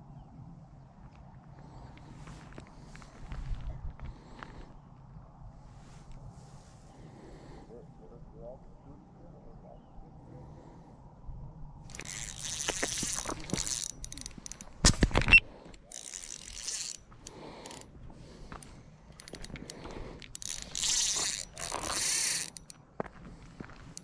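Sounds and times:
hand rubbing camera housing: 11.9s - 17.8s, 18.6s - 22.8s.

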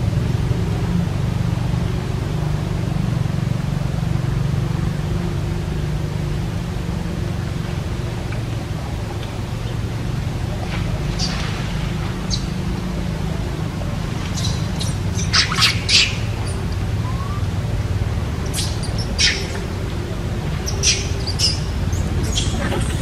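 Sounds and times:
steady low rumble: 0.0s - 23.0s
animal squawks and chirps: 14.4s - 17.5s, 18.4s - 19.7s, 20.6s - 23.0s.

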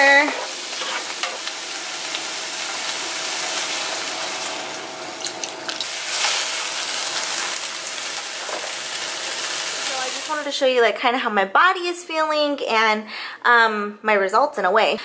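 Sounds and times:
onions frying in a pan: 0.0s - 10.5s.

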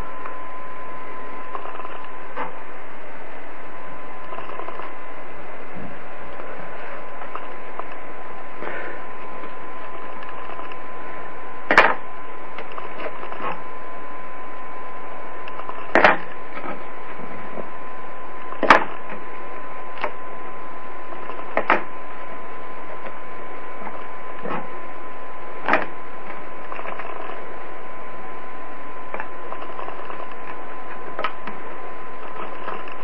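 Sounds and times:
steady hiss: 0.0s - 33.0s
sharp wooden cracks: 11.6s - 13.7s, 15.4s - 16.8s, 18.5s - 19.3s, 19.9s - 20.2s, 21.1s - 22.0s, 25.6s - 27.5s, 29.1s - 33.0s.

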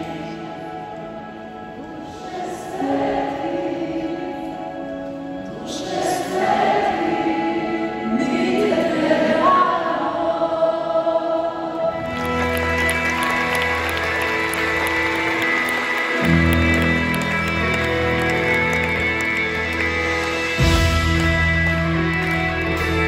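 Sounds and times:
crowd singing chorus: 0.0s - 12.6s
band playing: 12.2s - 23.0s.

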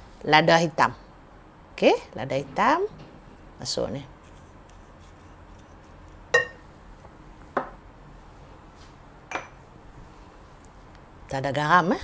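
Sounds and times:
ceramic dishes clinking: 6.3s - 6.6s, 9.3s - 9.6s.

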